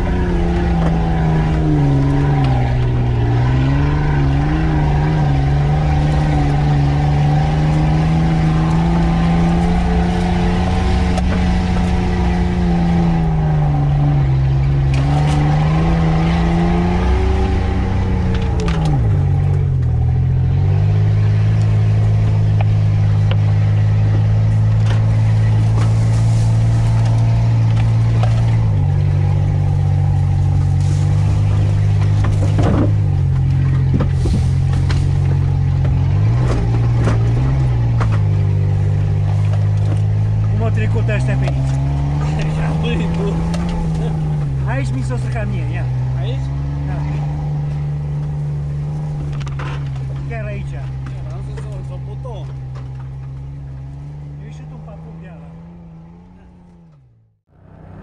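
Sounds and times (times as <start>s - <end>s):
off-road vehicle engine revving: 0.0s - 58.0s
brush noise: 24.5s - 28.8s, 29.7s - 40.5s.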